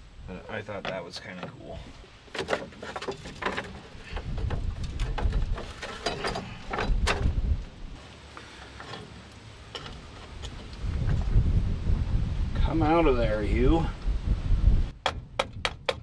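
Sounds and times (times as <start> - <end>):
metal cowl scraping and knocking: 2.3 - 7.4.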